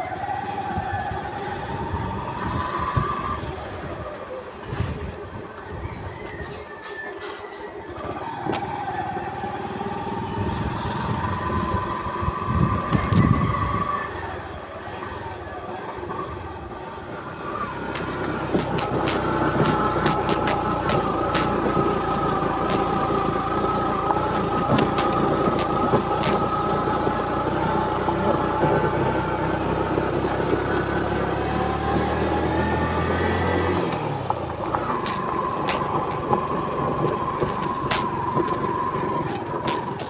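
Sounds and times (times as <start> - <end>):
motorcycle engine running: 7.9 - 40.0
knocks from bumps: 34.8 - 40.0.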